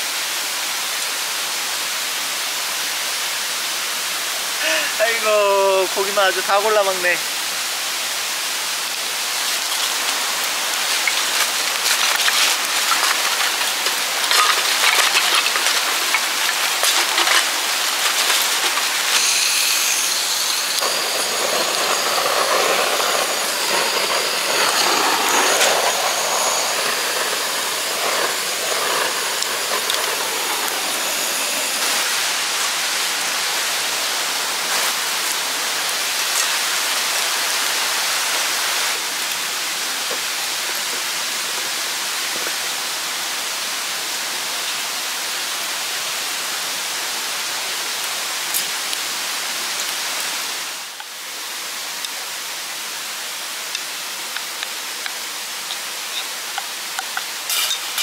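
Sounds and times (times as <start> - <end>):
stream water rushing: 0.0 - 58.0
butane torch hissing: 4.3 - 33.4, 56.0 - 58.0.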